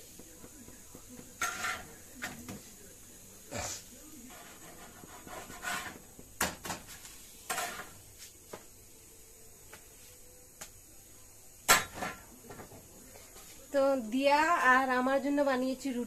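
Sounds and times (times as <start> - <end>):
metal spatula clanking on griddle: 1.4 - 2.4, 7.5 - 8.0, 11.7 - 12.2.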